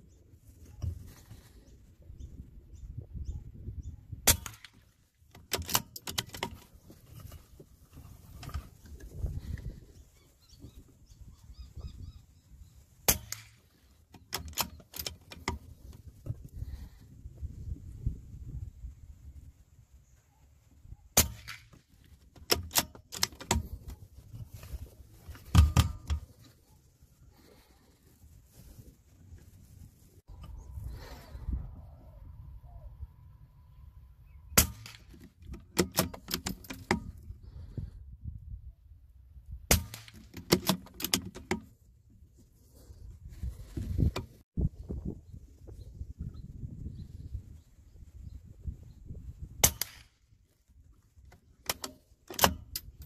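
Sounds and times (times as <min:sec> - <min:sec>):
rifle bolt metallic clicks: 0:04.3 - 0:07.3, 0:13.1 - 0:15.7, 0:22.4 - 0:24.0, 0:25.3 - 0:26.3, 0:34.6 - 0:37.2, 0:39.7 - 0:41.7, 0:49.6 - 0:50.1, 0:51.2 - 0:53.0
rifle handling knocks: 0:25.3 - 0:26.3
rifle shot: 0:34.6 - 0:35.1, 0:49.6 - 0:50.2.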